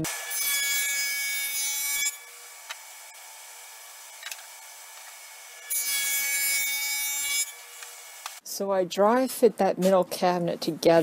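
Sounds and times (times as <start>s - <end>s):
table saw cutting plywood: 0.0s - 8.4s.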